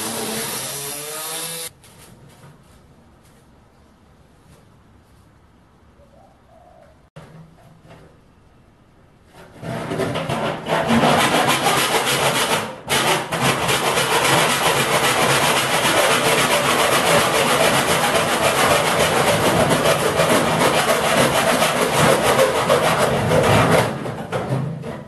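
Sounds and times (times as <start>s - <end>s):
cut-off disc grinding steel: 0.0s - 1.7s.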